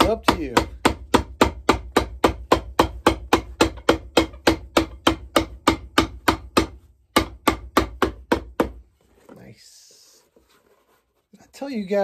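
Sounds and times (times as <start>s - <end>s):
hammer pounding shoe sole: 0.0s - 8.9s.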